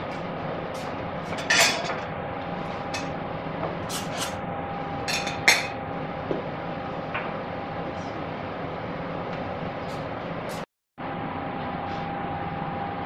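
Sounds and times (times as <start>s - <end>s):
dishes and utensils clinking: 1.3s - 2.0s, 5.1s - 5.8s.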